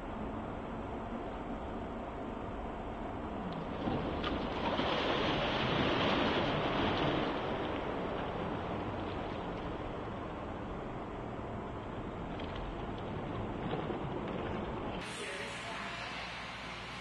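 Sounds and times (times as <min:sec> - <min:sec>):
churning water rushing: 0:03.5 - 0:16.6.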